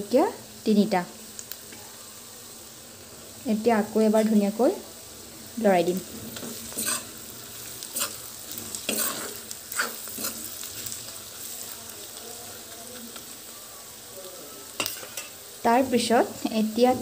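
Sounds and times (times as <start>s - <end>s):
onions sizzling in hot oil: 0.0s - 17.0s
metal spatula scraping a pan: 6.2s - 10.9s, 14.8s - 15.4s.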